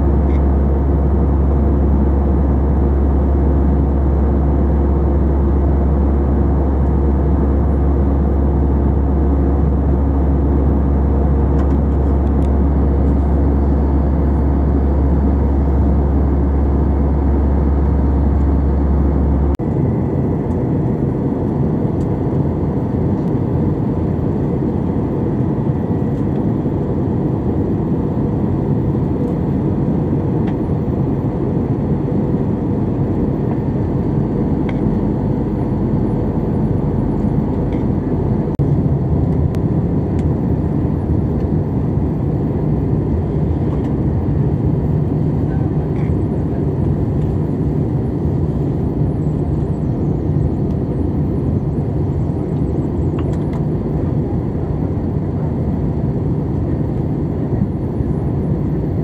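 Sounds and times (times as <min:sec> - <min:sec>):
jet engine rumble: 0:00.0 - 0:59.0.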